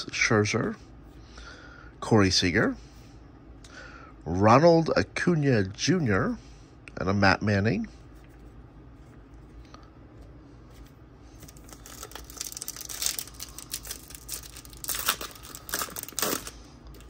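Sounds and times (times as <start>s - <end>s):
foil wrapper crinkling and tearing: 11.4s - 17.0s.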